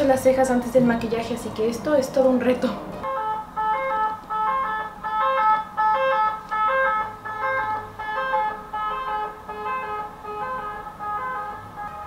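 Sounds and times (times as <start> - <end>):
ambulance siren: 3.0 - 12.0.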